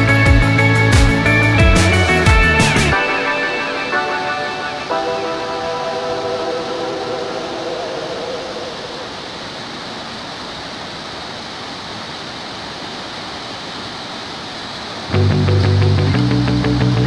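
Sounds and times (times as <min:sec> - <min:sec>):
loud background music: 0:00.0 - 0:06.7
river water rushing: 0:02.9 - 0:16.8.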